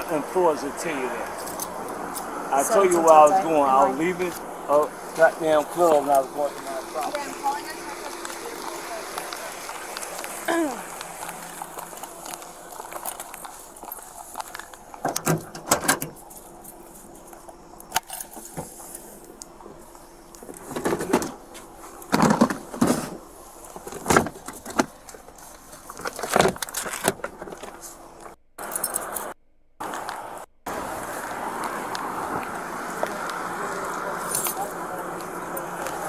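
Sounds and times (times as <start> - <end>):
rustling and clattering handling: 9.8 - 29.3
keys jangling: 28.6 - 29.3, 34.2 - 34.7.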